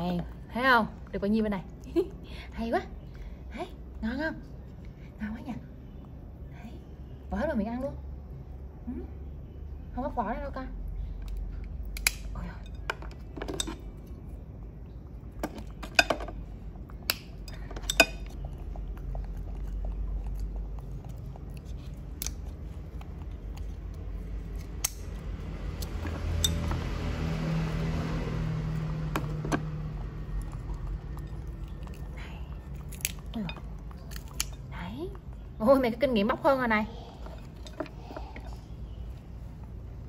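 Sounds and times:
low hum: 0.0 - 40.0
monkey chewing and crunching: 13.2 - 40.0.

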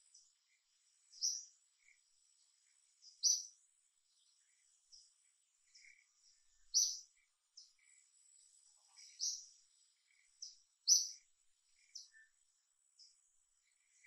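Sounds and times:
birds chirping: 0.0 - 14.0.

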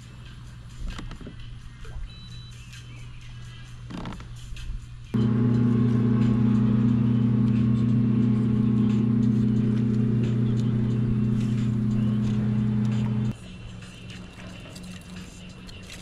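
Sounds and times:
electric motor humming and whining: 5.2 - 13.3.

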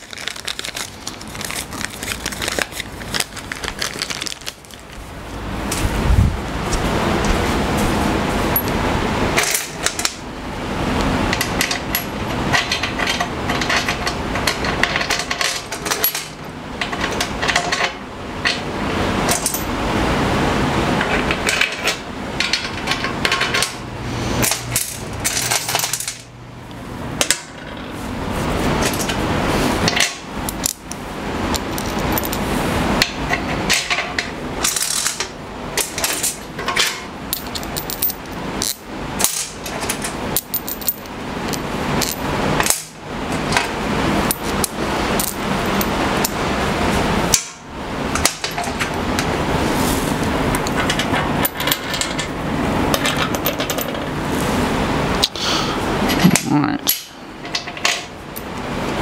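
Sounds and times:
metal bolts clinking and rattling: 11.4 - 18.6, 19.2 - 19.7, 24.4 - 26.3, 31.5 - 42.9, 50.6 - 54.1.

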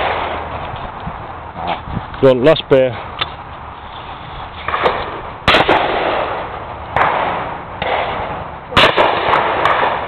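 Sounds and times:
shotgun shot: 4.7 - 6.4, 7.0 - 10.0.

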